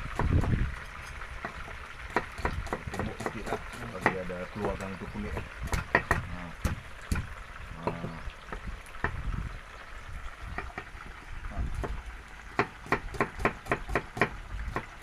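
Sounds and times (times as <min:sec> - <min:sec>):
chicken sizzling in oil: 0:00.0 - 0:15.0
knife chopping on wooden board: 0:00.2 - 0:00.6, 0:01.4 - 0:08.2, 0:12.6 - 0:14.8.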